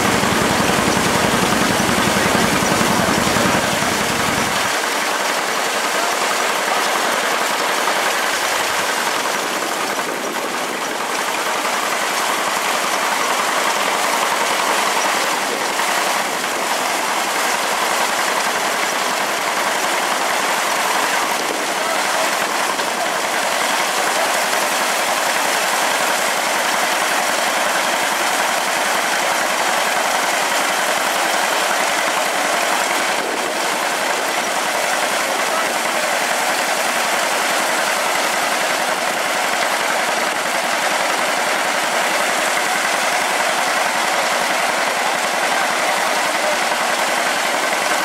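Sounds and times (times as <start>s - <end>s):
grain thresher running: 0.0s - 48.0s
tractor engine: 0.0s - 48.0s.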